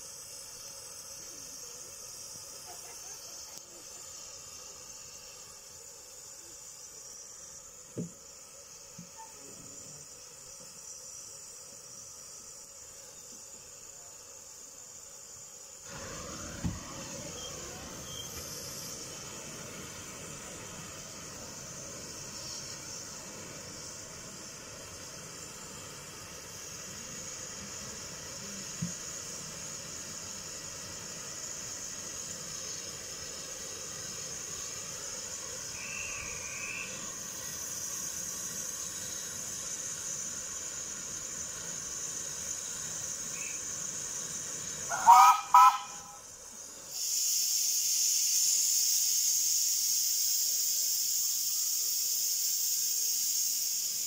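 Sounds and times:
loud rush of steam: 0:00.0 - 0:02.0, 0:15.8 - 0:54.0
steam hissing: 0:00.0 - 0:54.0
steam whistle blasts: 0:15.9 - 0:18.5, 0:35.7 - 0:37.1, 0:44.8 - 0:46.3.

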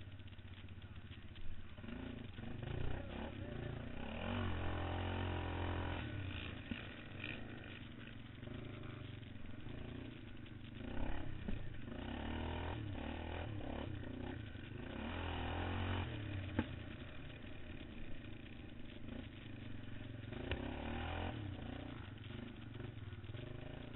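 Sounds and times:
quad engine revving: 0:01.7 - 0:23.9.

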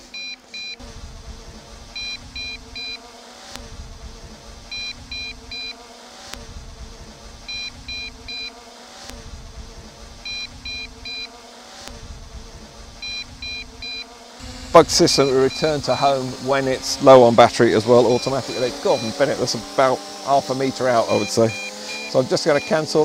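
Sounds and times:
short high beeps: 0:00.0 - 0:00.8, 0:02.0 - 0:03.0, 0:04.7 - 0:05.8, 0:07.5 - 0:08.5, 0:10.2 - 0:11.3, 0:13.0 - 0:14.1, 0:15.1 - 0:15.8, 0:21.1 - 0:22.8.

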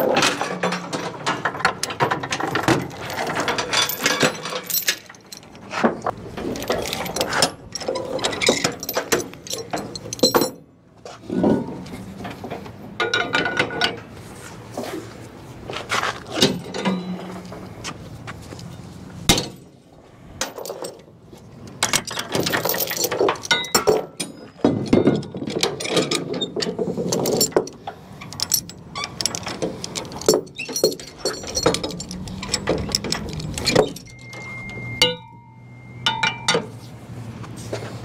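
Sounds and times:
metal chain clinking and rattling: 0:00.0 - 0:10.7, 0:20.4 - 0:21.1, 0:21.8 - 0:36.7.

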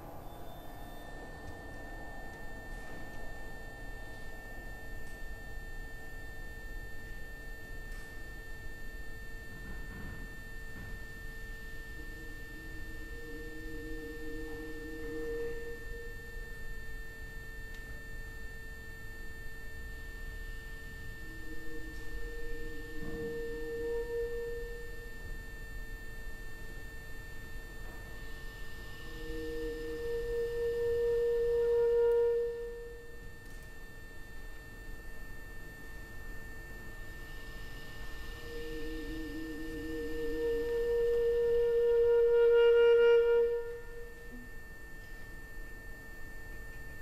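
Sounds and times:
high steady tone: 0:00.0 - 0:07.7, 0:11.2 - 0:17.8, 0:20.6 - 0:26.0, 0:28.4 - 0:33.6, 0:37.3 - 0:44.6
deep wavering tone: 0:00.0 - 0:47.0
lower sustained tone: 0:00.0 - 0:47.0.

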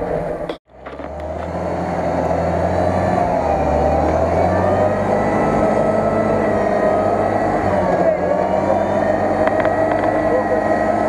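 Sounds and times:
off-road vehicle engine revving: 0:00.0 - 0:11.0
high whine: 0:03.4 - 0:11.0.

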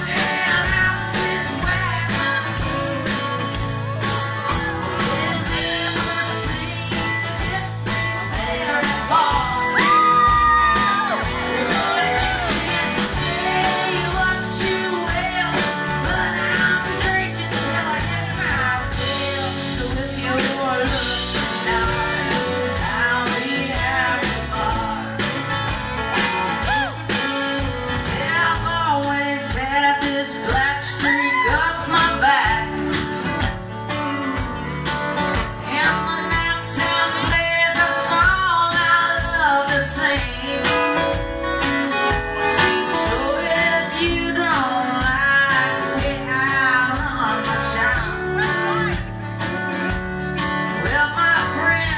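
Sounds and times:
woman singing: 0:00.0 - 0:25.6, 0:28.0 - 0:41.2, 0:42.7 - 0:49.1, 0:50.6 - 0:51.9
strummed acoustic guitar: 0:00.0 - 0:31.0, 0:31.6 - 0:51.9
drums: 0:00.0 - 0:51.9
electric bass: 0:00.0 - 0:51.9.

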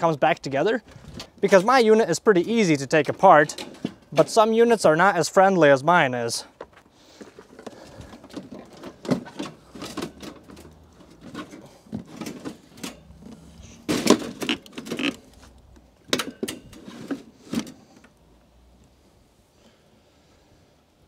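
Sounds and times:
plastic parts clicking and knocking: 0:07.3 - 0:18.2.

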